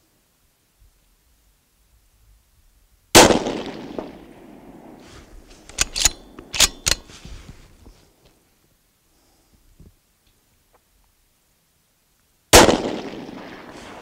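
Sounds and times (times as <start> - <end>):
rifle shot echoing: 3.2 - 4.9, 12.5 - 14.0
rifle bolt metallic clacks: 5.5 - 7.2.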